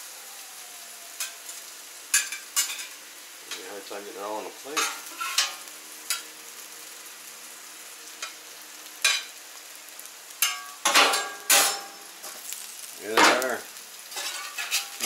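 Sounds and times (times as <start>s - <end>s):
faint sizzle of food: 0.0s - 15.0s
metal spatula scraping griddle: 4.7s - 6.2s, 14.1s - 15.0s.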